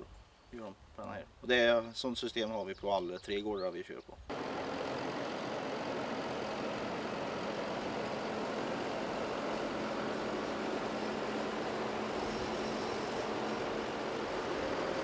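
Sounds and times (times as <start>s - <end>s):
tractor diesel engine running: 4.3s - 15.0s.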